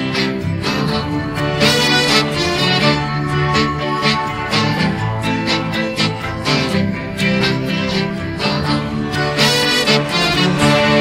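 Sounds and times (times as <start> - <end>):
rock band instruments without vocals: 0.0 - 11.0.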